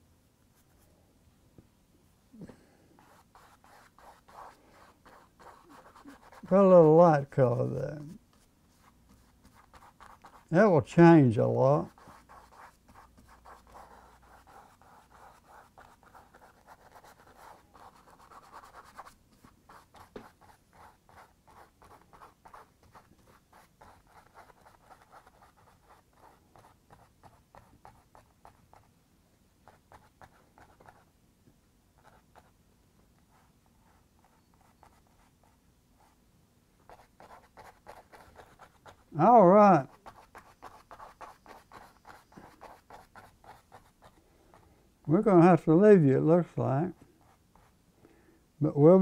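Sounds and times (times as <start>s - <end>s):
paintbrush scratching on canvas: 3.0s - 28.9s, 36.8s - 44.2s.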